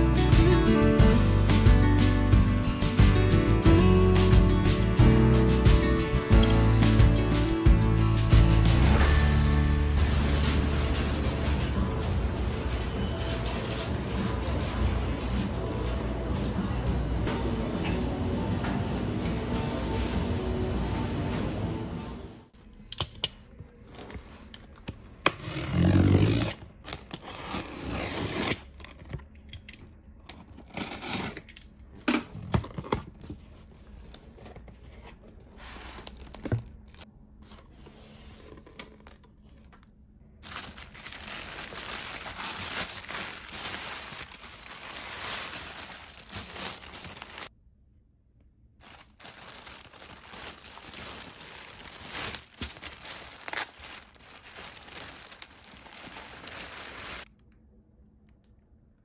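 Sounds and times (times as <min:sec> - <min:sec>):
paper and plastic rustling: 0:23.6 - 0:27.8, 0:32.4 - 0:39.8, 0:40.4 - 0:47.5, 0:48.8 - 0:57.3
packing tape tearing: 0:24.0 - 0:29.1, 0:30.6 - 0:31.6, 0:40.4 - 0:47.5, 0:48.8 - 0:57.3.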